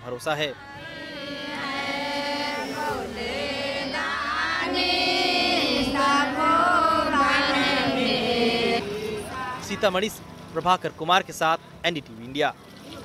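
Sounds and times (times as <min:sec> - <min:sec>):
women singing together: 0:00.5 - 0:09.9.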